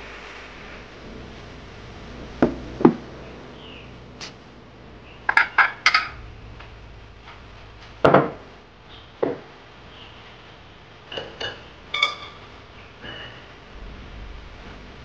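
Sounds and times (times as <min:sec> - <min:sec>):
ceramic dishes clinking: 0:11.1 - 0:12.4.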